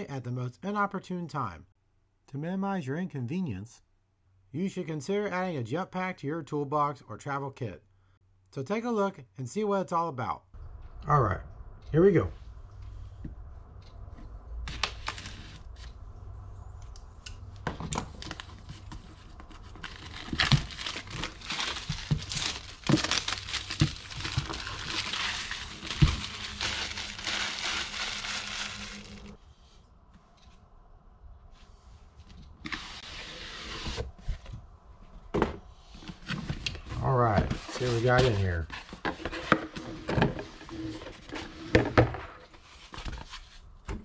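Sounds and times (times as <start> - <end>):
rustle of cardboard and plastic: 18.0 - 29.4, 35.7 - 43.9
plastic shrink-wrap crinkling: 18.1 - 29.4.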